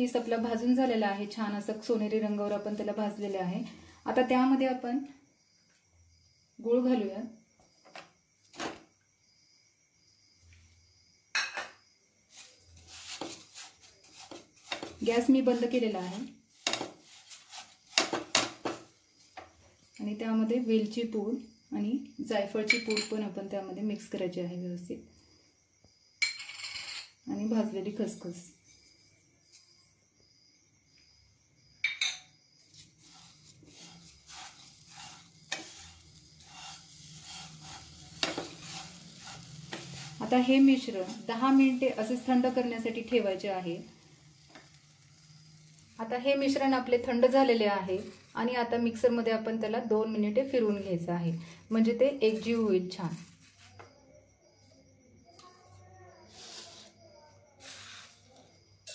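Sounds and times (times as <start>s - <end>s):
scraping and stirring in pan: 12.3s - 20.0s, 31.9s - 48.4s.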